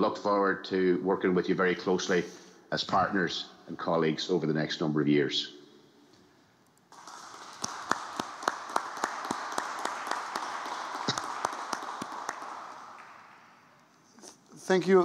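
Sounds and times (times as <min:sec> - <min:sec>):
people applauding: 0:06.9 - 0:13.8.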